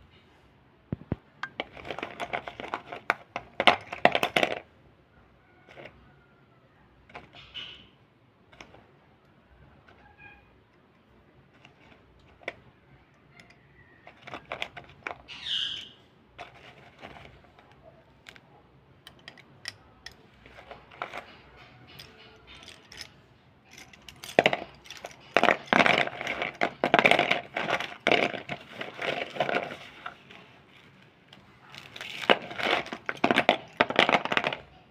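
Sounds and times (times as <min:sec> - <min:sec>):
slate crunching and scraping: 0:01.0 - 0:04.7, 0:09.8 - 0:12.8, 0:13.4 - 0:34.9
slate pencils clinking: 0:19.0 - 0:34.9.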